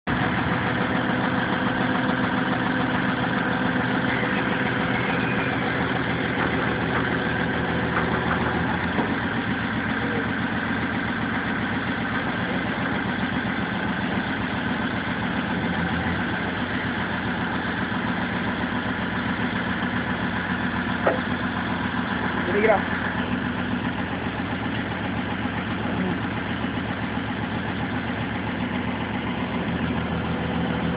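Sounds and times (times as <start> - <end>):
excavator engine running: 0.0 - 30.9.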